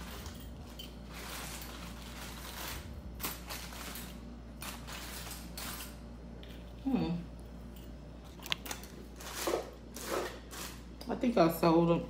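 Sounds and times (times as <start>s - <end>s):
hands rustling and scraping items: 0.0s - 6.8s
low steady hum: 0.0s - 12.0s.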